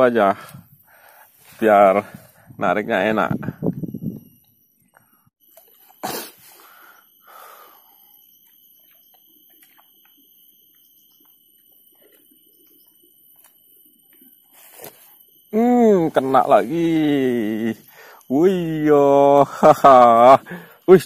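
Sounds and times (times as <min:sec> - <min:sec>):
faint high-pitched tone: 0:00.0 - 0:21.0
small ticks: 0:06.8 - 0:15.6, 0:17.8 - 0:18.4.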